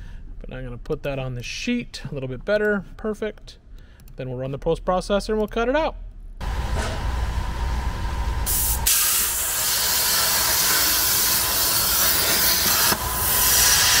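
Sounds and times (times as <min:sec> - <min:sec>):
low machine hum: 0:06.2 - 0:13.6
plasma torch hissing: 0:08.4 - 0:14.0.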